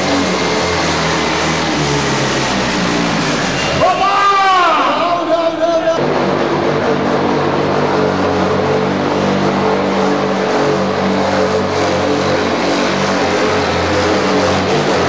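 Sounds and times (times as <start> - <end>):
tractor engine running hard: 0.0 - 15.0.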